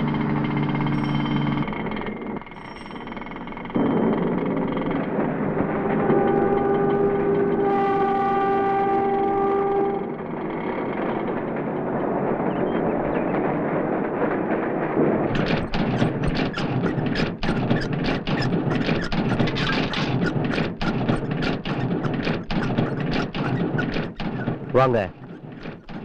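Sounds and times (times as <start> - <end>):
steady machine rumble: 0.0 - 26.0
printing press clacking: 10.9 - 26.0.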